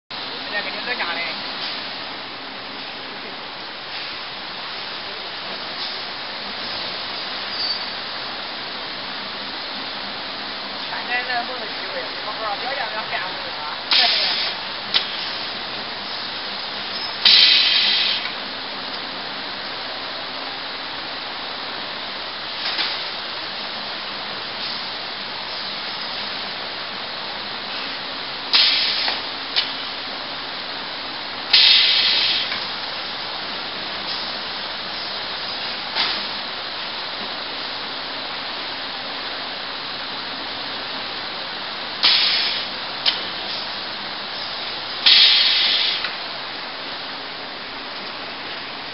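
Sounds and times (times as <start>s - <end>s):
steady background hiss: 0.2s - 48.9s
pneumatic cylinder air hisses: 13.9s - 15.5s, 16.9s - 18.4s, 28.5s - 29.3s, 31.5s - 32.6s, 42.0s - 43.7s, 44.4s - 46.2s.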